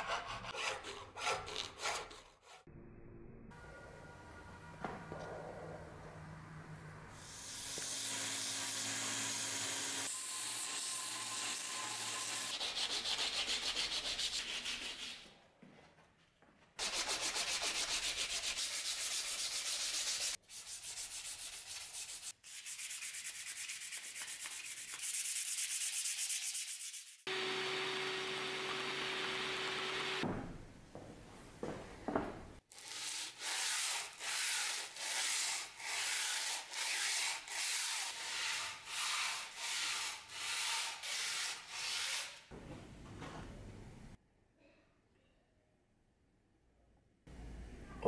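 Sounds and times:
abrasive sanding strokes: 16.8s - 30.2s, 32.8s - 42.4s.

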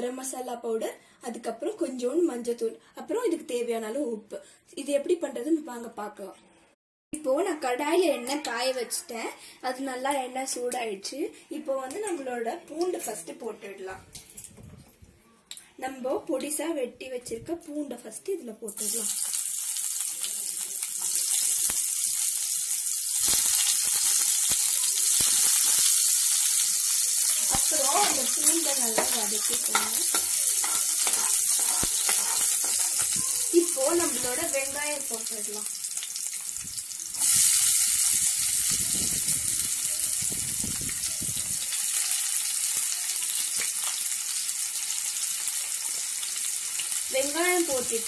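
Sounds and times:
garlic sizzling in hot oil: 18.7s - 48.0s.

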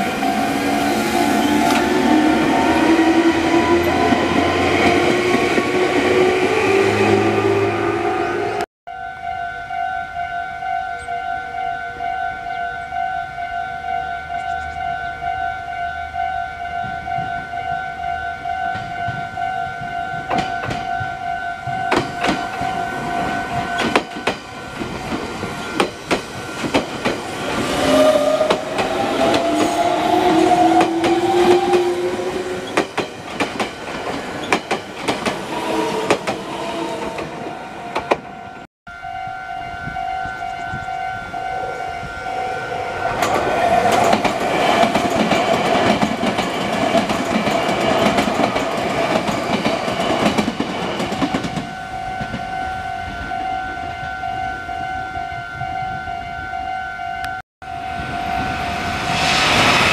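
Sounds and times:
train rumble: 18.8s - 38.7s, 39.8s - 53.3s, 57.7s - 59.9s.

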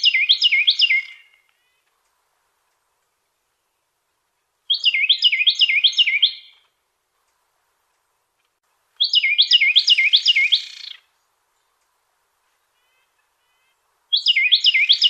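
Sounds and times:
wren singing rolling whistles: 0.0s - 1.5s, 4.7s - 6.6s, 9.0s - 11.1s, 12.8s - 15.0s.

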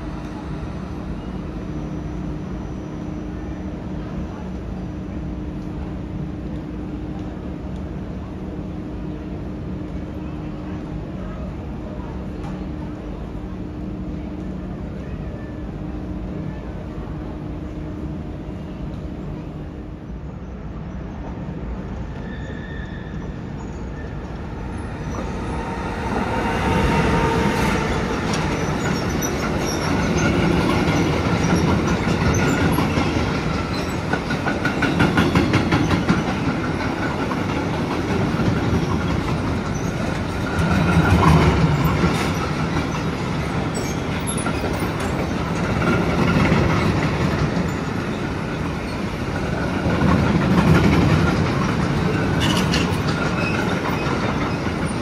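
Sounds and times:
train passing: 0.0s - 55.0s
wheels clicking over rail joints: 49.3s - 55.0s.

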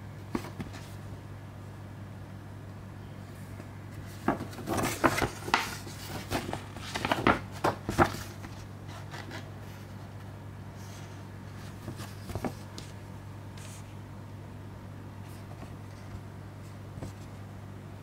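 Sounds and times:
steady low hum: 0.0s - 18.0s
paper and cardboard rustling: 0.3s - 1.0s, 3.6s - 10.0s, 10.8s - 13.0s.

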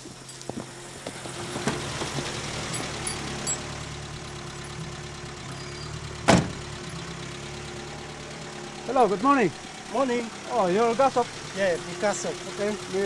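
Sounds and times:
pickup truck engine idling: 0.0s - 13.0s
truck door shutting: 0.5s - 3.6s, 6.2s - 6.7s.

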